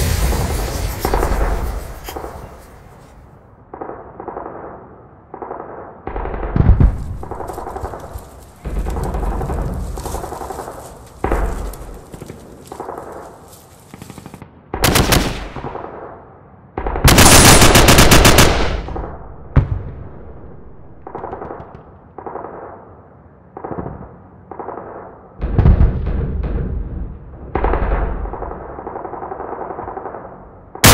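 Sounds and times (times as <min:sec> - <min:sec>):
automatic gunfire bursts: 0:17.1 - 0:18.8.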